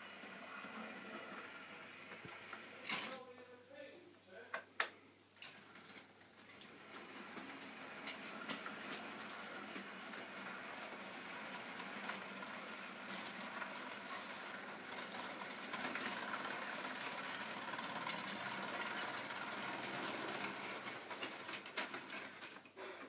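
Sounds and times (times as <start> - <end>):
model train motor running: 0.0 - 2.8, 6.7 - 22.7
wagons rolling on track: 6.7 - 22.7.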